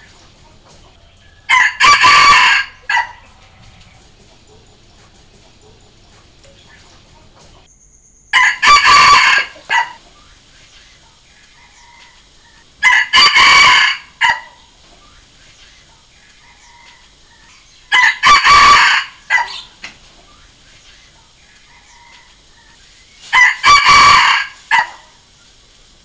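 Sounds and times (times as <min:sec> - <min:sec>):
rooster crowing: 0:00.9 - 0:04.8, 0:08.3 - 0:10.0, 0:11.6 - 0:14.7, 0:16.4 - 0:19.8, 0:21.7 - 0:25.2.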